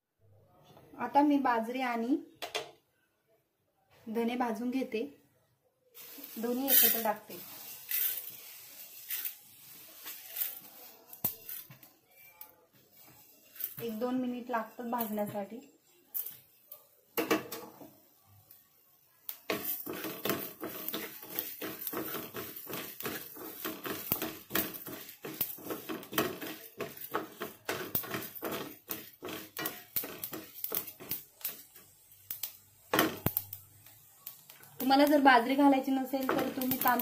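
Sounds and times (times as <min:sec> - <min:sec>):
seeds rattling against metal: 0:06.0 - 0:12.4, 0:13.0 - 0:16.9, 0:19.3 - 0:37.0
spatula scraping metal pan: 0:06.3 - 0:16.3, 0:19.5 - 0:32.4.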